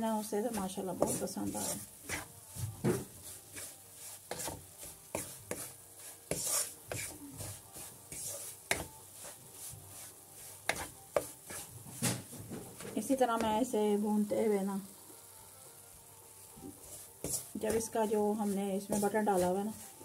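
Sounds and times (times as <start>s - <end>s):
wooden spoon scraping a pan: 0.0s - 13.7s, 16.3s - 20.0s.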